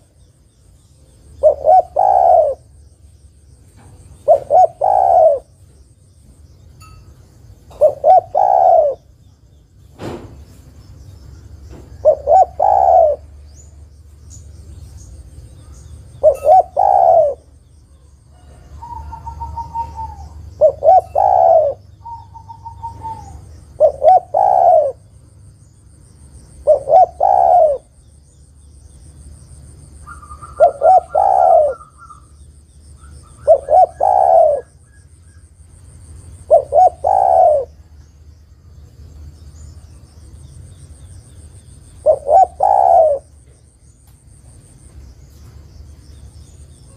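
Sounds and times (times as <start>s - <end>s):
dove cooing: 1.3s - 2.8s, 4.1s - 5.6s, 7.7s - 9.2s, 12.0s - 13.4s, 16.2s - 17.6s, 18.4s - 25.1s, 26.6s - 28.0s, 30.0s - 32.4s, 33.0s - 35.5s, 36.4s - 37.8s, 42.0s - 43.4s.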